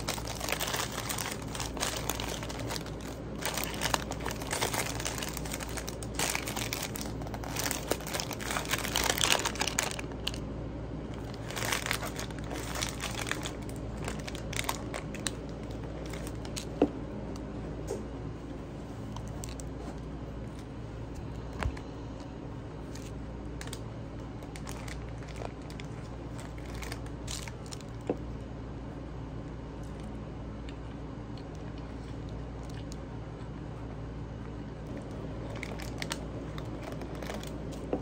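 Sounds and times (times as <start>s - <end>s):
wrapping crinkling and rustling: 0.0s - 16.9s, 18.8s - 28.2s, 34.8s - 38.0s
steady low hum: 0.0s - 38.0s.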